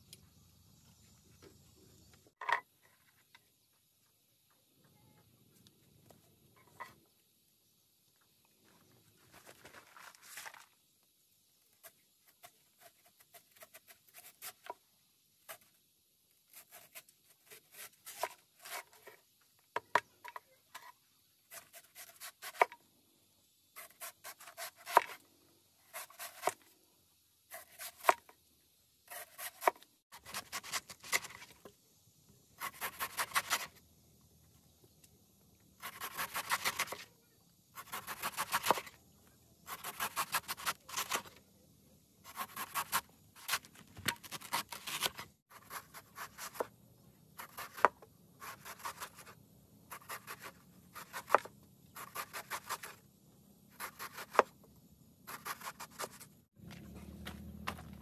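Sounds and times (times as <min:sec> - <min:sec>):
knife chopping on wooden board: 0:47.4 - 0:49.3, 0:49.9 - 0:52.9.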